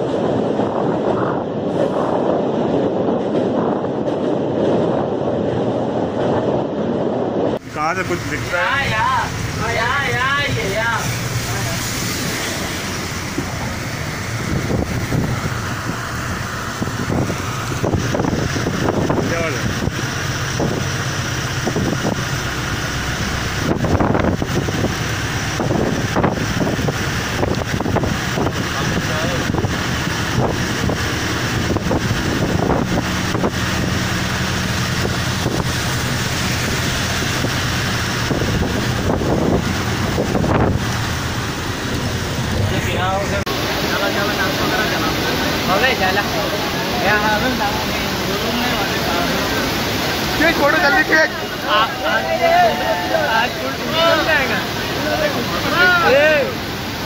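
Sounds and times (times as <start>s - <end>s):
low engine hum: 0.0s - 57.0s
vehicle rumble: 0.0s - 57.0s
wind buffeting microphone: 0.0s - 57.0s.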